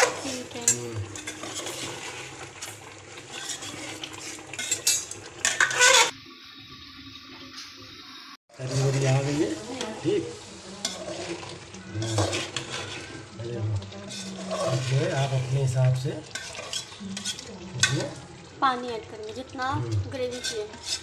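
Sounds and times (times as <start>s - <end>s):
metal spoon scraping a pot: 0.0s - 6.2s, 10.8s - 18.2s, 20.2s - 21.0s
sauce sizzling in oil: 0.0s - 21.0s.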